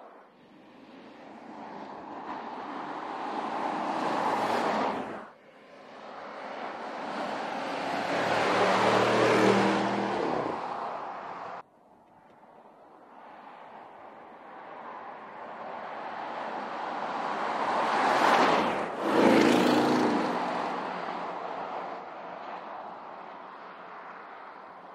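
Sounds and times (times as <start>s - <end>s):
car driving past: 6.3s - 10.9s.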